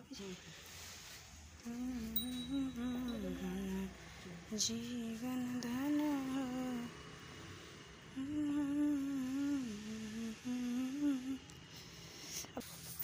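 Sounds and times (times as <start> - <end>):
woman humming: 1.6 - 3.9, 8.2 - 11.4.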